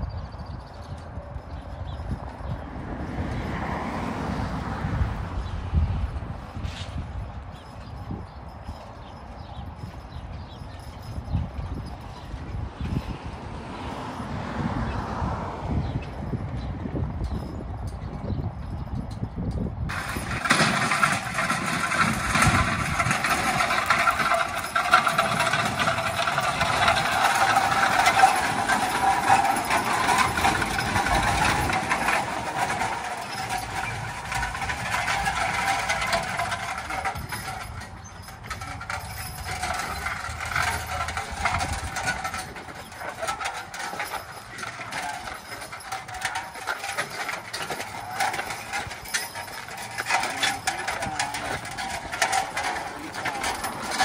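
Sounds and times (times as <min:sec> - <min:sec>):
metallic rattling and clanking: 0:15.7 - 0:54.0
crunching gravel: 0:19.9 - 0:54.0
hoof falls: 0:19.9 - 0:54.0.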